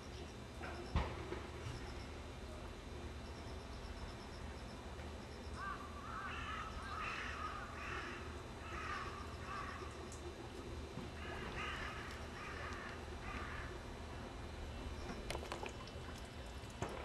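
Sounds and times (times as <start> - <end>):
steady low hum: 0.0 - 17.0
crow cawing: 5.6 - 10.0, 11.2 - 13.8.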